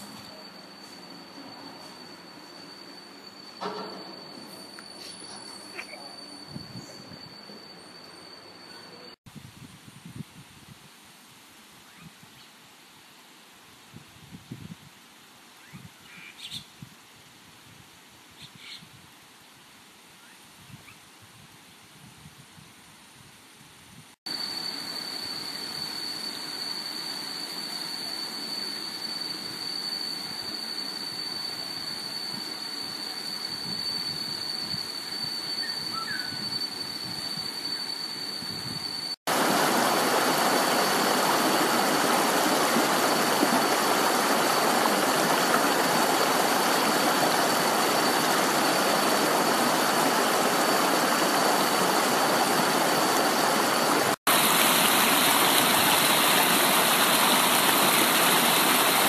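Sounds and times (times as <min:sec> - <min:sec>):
high-pitched whine: 0:00.0 - 0:09.2, 0:24.3 - 0:59.0
soft rushing hiss: 0:36.4 - 0:59.0
rushing water: 0:39.3 - 0:59.0.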